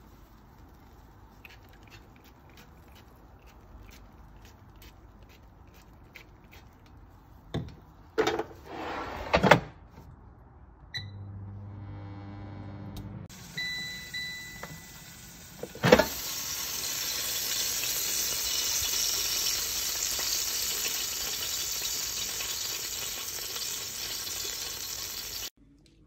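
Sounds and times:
chicken sizzling: 0.0 - 1.5, 13.3 - 25.6
air fryer beeps: 10.9 - 16.6
air fryer basket clunk: 15.6 - 16.2.

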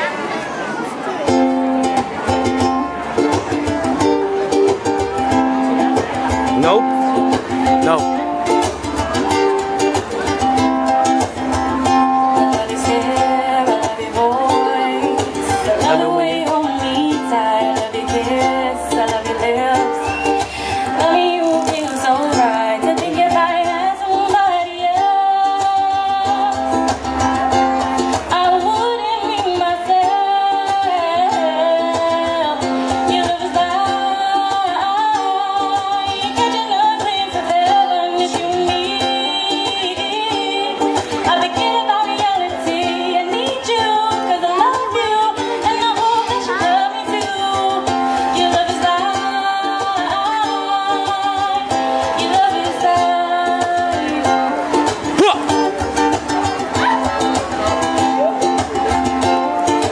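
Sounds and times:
ukulele strumming: 1.0 - 59.9
woman singing into a microphone: 8.5 - 55.1.

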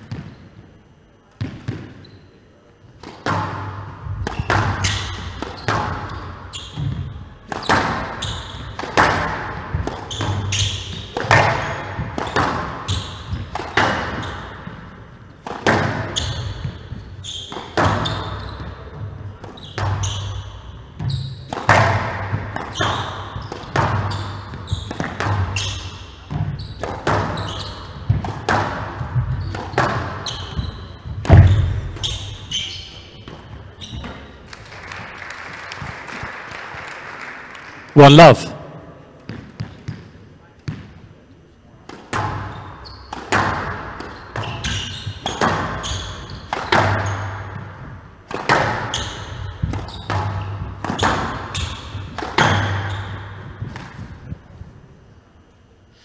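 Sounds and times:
squash ball cracking off rackets: 3.0 - 34.6, 41.8 - 54.3.

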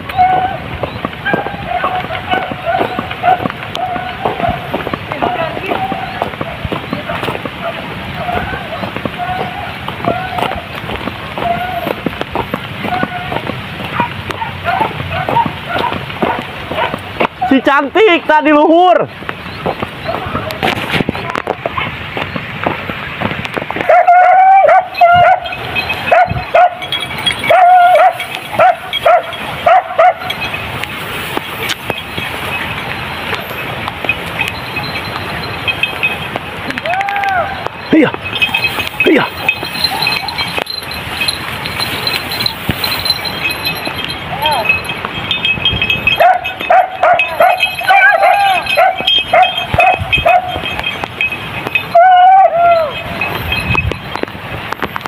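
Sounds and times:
hunting dog yelping barks: 0.0 - 0.6, 1.2 - 10.7, 12.8 - 17.8, 23.8 - 30.7, 37.0 - 44.8, 46.1 - 51.0, 51.7 - 53.4.

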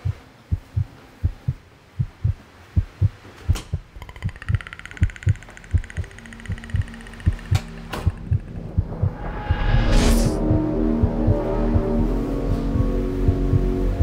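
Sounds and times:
heartbeat thumps: 0.0 - 14.0
high pulsing buzzing tone: 4.0 - 13.7
short whoosh: 9.0 - 10.6.

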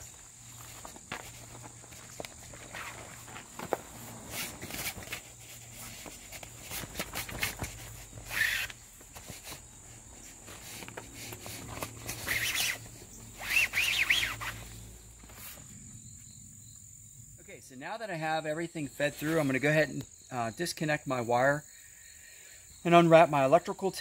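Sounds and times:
awning edge rustling and scraping: 0.0 - 15.8
shock cord squeaks: 4.4 - 9.6, 10.3 - 14.8.

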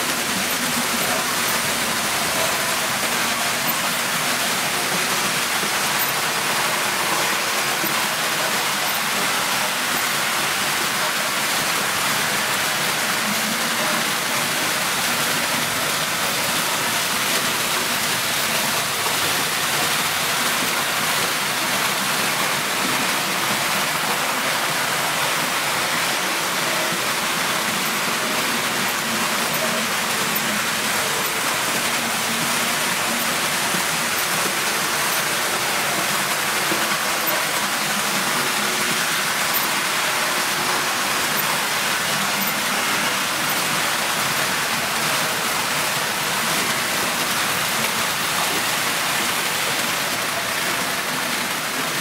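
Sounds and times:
model trains rattling on track: 0.0 - 52.0.

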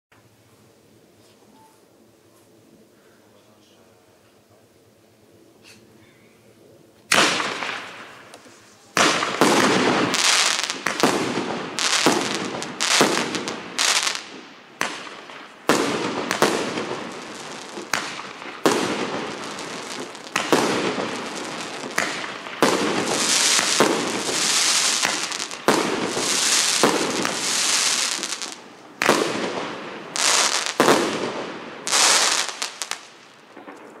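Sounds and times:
fireworks bangs: 7.1 - 34.0
crackling hiss of bursting stars: 7.2 - 34.0.

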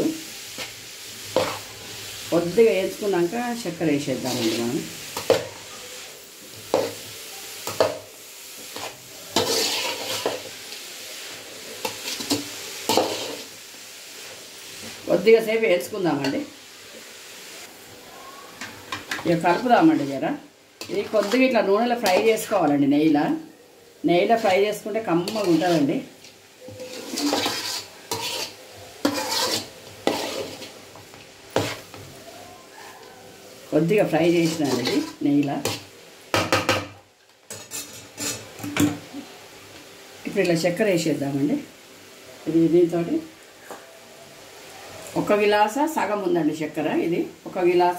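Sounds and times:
carrots sizzling in oil: 0.0 - 47.9
spatula scraping metal pan: 4.2 - 5.7, 8.7 - 10.5, 20.8 - 22.5, 25.2 - 26.0, 26.6 - 30.8, 31.6 - 32.1, 34.0 - 35.9, 37.5 - 38.9.

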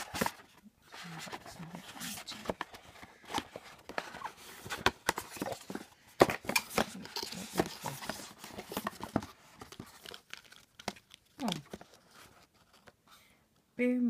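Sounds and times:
cardboard packaging taps and rustles: 2.4 - 12.0.

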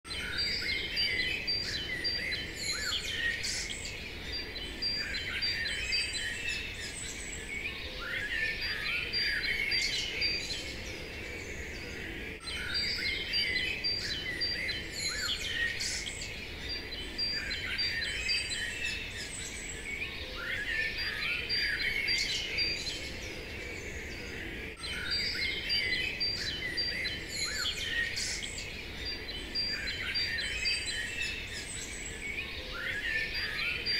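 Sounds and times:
birds chirping and singing: 0.1 - 33.9.

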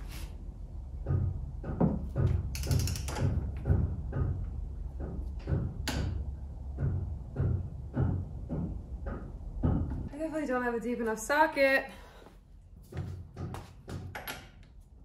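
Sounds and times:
hand ratchet clicking on metal: 2.4 - 3.4.

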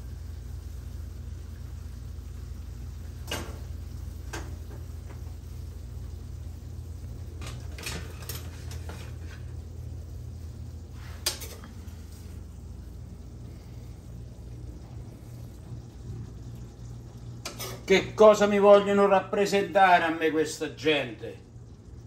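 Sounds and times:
steady low hum: 0.0 - 22.0
metal tongs clinking on pan: 17.4 - 17.9.

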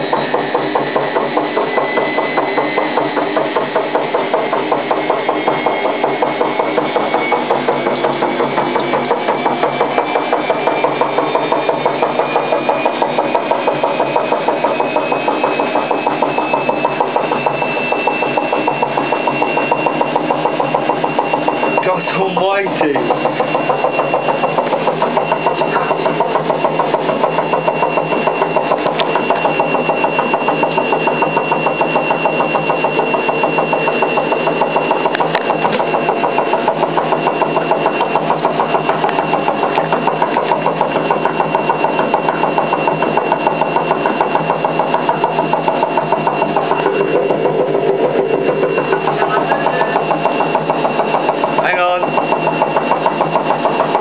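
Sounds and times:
washing machine drum droning: 0.0 - 54.0
high thin whine: 1.6 - 36.2.

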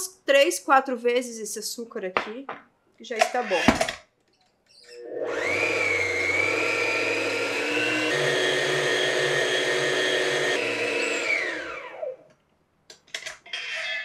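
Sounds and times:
stand mixer whining: 5.0 - 12.2.

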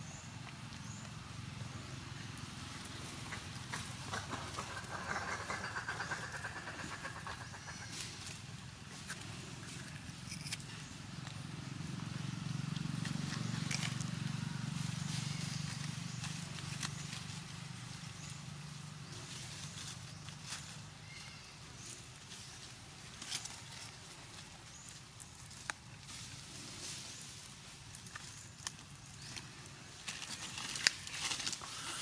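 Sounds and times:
motor engine passing: 0.8 - 20.8.

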